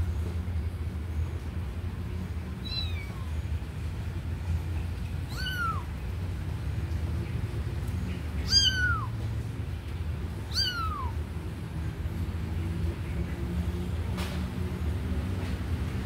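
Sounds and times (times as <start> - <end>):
steady low hum: 0.0 - 16.0
kitten meowing: 2.6 - 3.3, 5.3 - 5.9, 8.4 - 9.1, 10.4 - 11.2.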